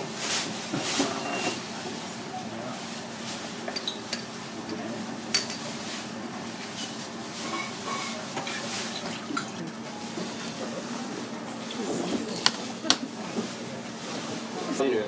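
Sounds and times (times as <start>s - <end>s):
dishes and utensils clinking: 3.7s - 6.0s, 6.7s - 13.5s.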